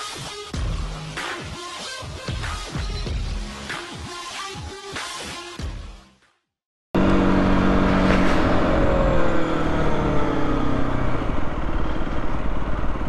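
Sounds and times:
motorcycle engine slowing down: 0:07.0 - 0:13.0.

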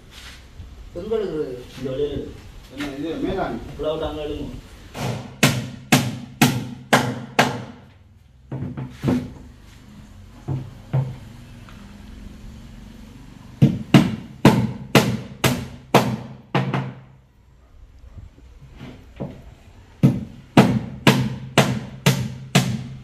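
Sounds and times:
hammer driving nails into wood: 0:04.9 - 0:07.9, 0:13.6 - 0:17.0, 0:20.0 - 0:23.0.

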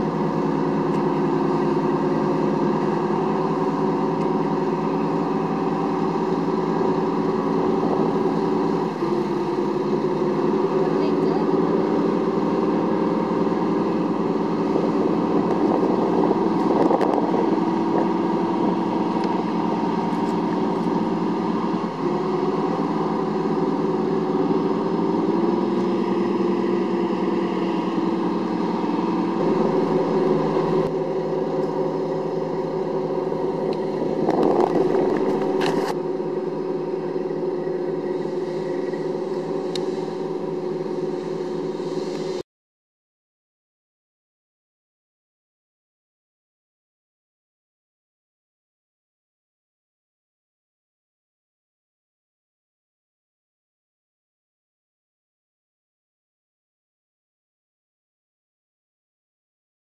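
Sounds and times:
vehicle engines running under load: 0:00.0 - 0:42.4.

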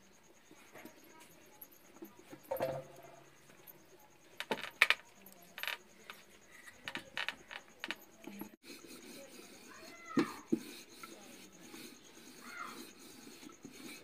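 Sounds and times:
metal plate and tumbler clinking: 0:00.7 - 0:08.6.

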